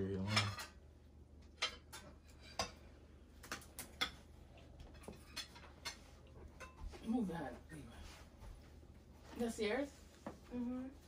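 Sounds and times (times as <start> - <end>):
cutlery clinking on plates: 0.2 - 0.8, 1.5 - 7.0.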